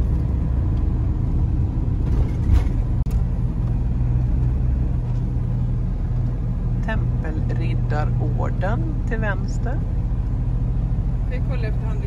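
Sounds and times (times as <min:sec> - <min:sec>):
motorhome engine and tyre noise: 0:00.0 - 0:12.0.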